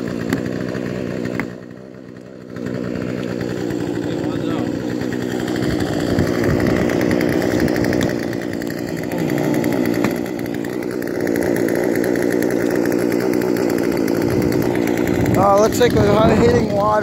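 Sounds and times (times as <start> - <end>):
chainsaw engine running: 0.0 - 17.0
ice chisel knocks: 10.0 - 10.2.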